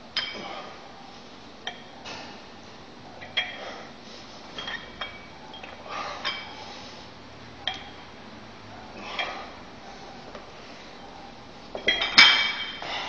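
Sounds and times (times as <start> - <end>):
metal dumbbell plates clinking: 3.2 - 3.7, 4.5 - 6.6, 7.6 - 8.0, 11.7 - 12.9.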